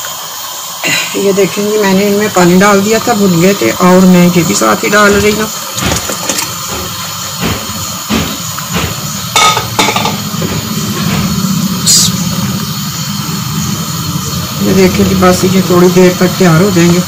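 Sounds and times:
curry boiling: 0:00.0 - 0:17.0
steady low hum: 0:02.0 - 0:17.0
spoon knocking against pot: 0:05.1 - 0:11.3.

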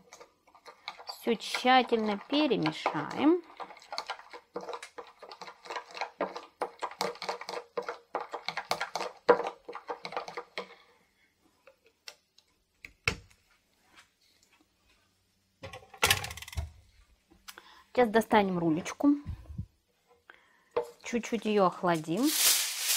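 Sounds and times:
spoon stirring in plastic bowl: 0:00.0 - 0:13.1.

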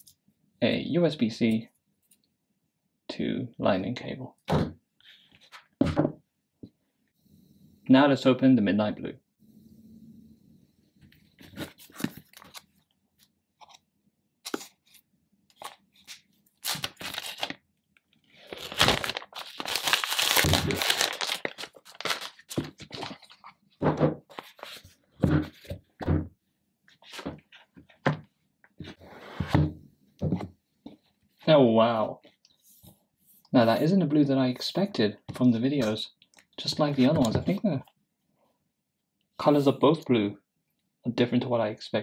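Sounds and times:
cardboard tearing and crinkling: 0:15.6 - 0:17.6, 0:18.4 - 0:23.4.

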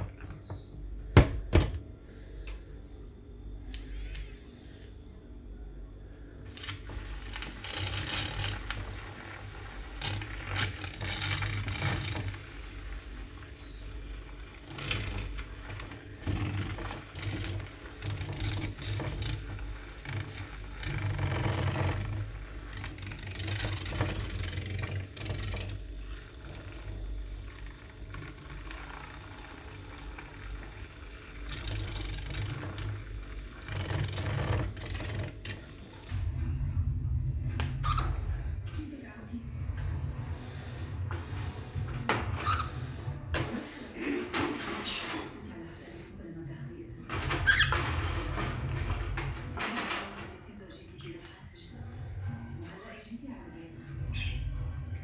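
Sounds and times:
milk frother whirring: 0:06.5 - 0:36.2.

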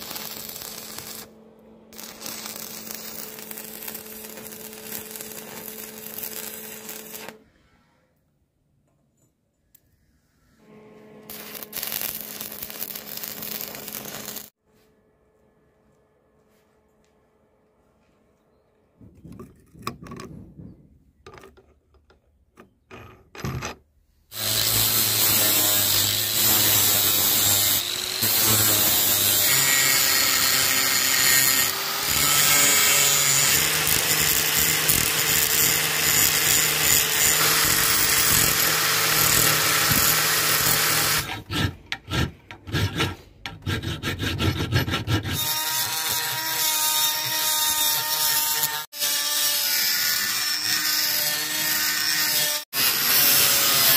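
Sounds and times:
angle grinder grinding steel: 0:11.2 - 0:14.5, 0:24.3 - 0:53.9
high-whining die grinder: 0:24.3 - 0:53.9.

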